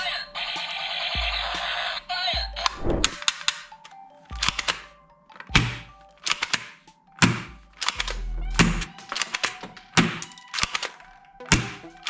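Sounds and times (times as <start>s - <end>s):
plastic toy guns clattering: 3.1s - 8.2s, 8.8s - 12.0s.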